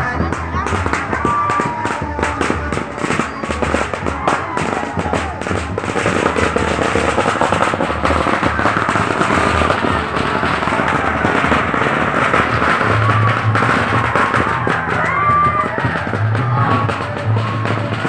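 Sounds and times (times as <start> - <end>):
firecrackers popping: 0.0 - 18.0.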